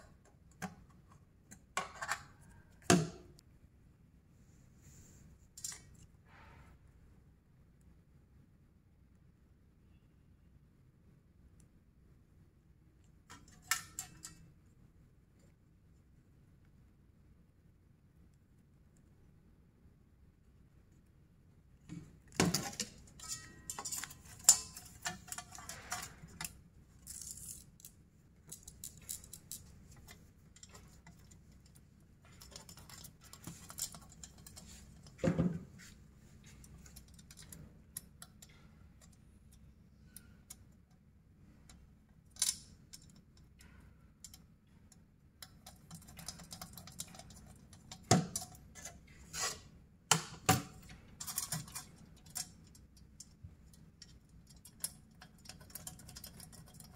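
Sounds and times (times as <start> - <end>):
tools clicking and tapping: 13.2 - 14.5, 21.9 - 41.0, 41.7 - 56.9.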